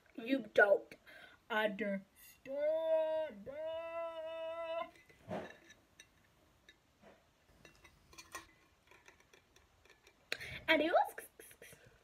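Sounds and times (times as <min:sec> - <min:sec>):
breath: 0:01.0 - 0:01.4.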